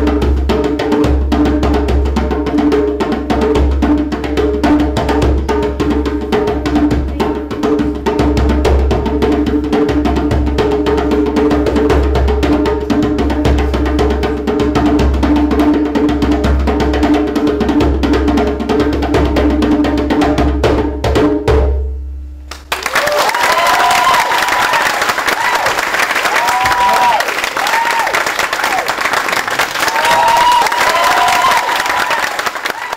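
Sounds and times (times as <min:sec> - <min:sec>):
audience applause: 0:22.5 - 0:32.9.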